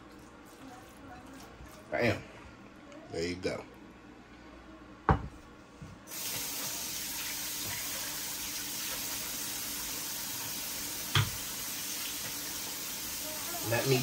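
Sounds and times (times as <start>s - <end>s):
faucet running into sink: 6.1s - 14.0s.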